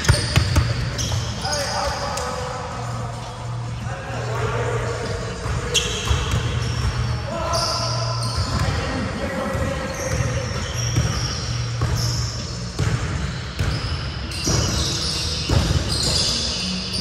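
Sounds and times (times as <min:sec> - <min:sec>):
basketballs bouncing on hardwood: 0:00.0 - 0:01.5, 0:04.2 - 0:07.1, 0:08.3 - 0:12.1, 0:12.7 - 0:16.3
sneaker squeaks: 0:00.0 - 0:17.0.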